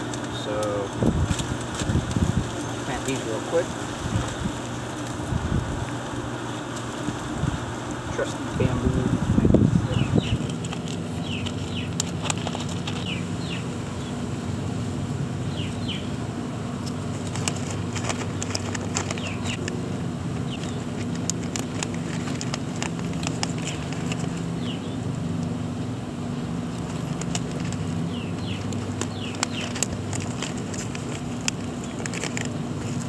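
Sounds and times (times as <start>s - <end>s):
steady low hum: 0.0s - 33.0s
bird chirps: 15.4s - 16.1s, 28.1s - 29.7s
hands rustling in soil: 16.7s - 25.3s, 26.5s - 33.0s.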